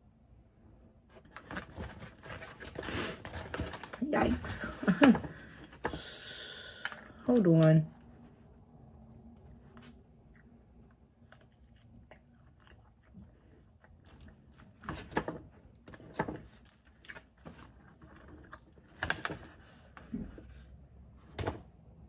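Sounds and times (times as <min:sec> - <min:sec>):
person biting and chewing food: 0:09.8 - 0:14.9.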